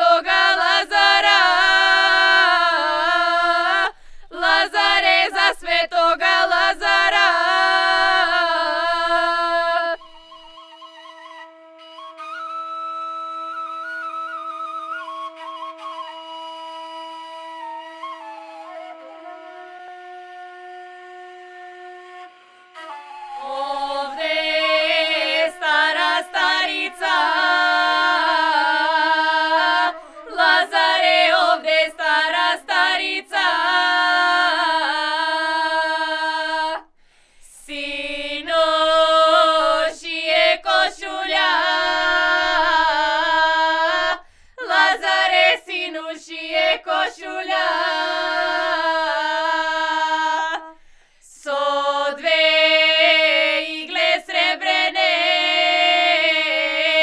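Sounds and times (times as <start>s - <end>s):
girls singing in unison: 0.0s - 10.2s, 23.3s - 36.9s, 37.5s - 57.0s
held flute note: 9.8s - 31.4s.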